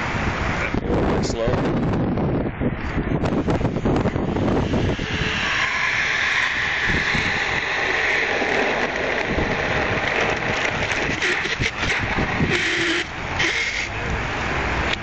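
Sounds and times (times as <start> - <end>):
water and air hissing through hose: 2.8 - 14.1.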